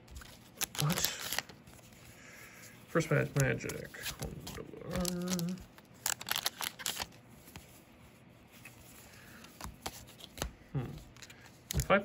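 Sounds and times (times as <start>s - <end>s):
cards clicking and snapping: 0.0s - 1.6s, 3.3s - 7.6s, 9.3s - 12.0s
cards rustling: 0.0s - 12.0s
person humming: 4.8s - 5.6s, 10.7s - 11.1s.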